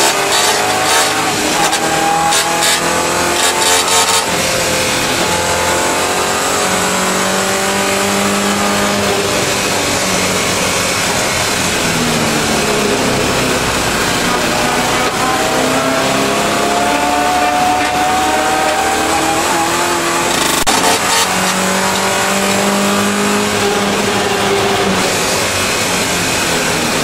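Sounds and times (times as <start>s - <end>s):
race car engine at speed: 0.0s - 27.0s.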